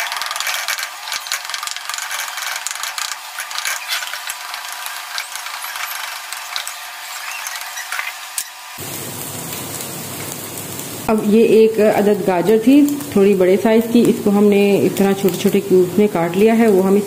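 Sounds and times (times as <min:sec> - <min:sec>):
spatula stirring: 0:00.0 - 0:08.5
eggs sizzling in hot oil: 0:00.0 - 0:17.0.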